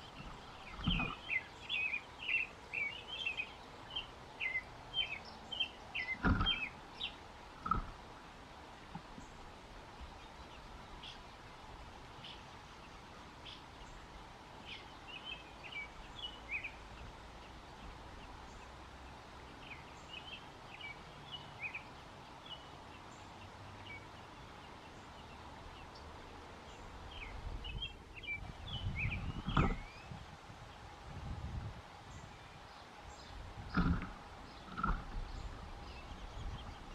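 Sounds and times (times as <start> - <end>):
bird nestlings peeping: 0.0 - 8.0, 33.2 - 36.9
background hiss: 0.0 - 36.9.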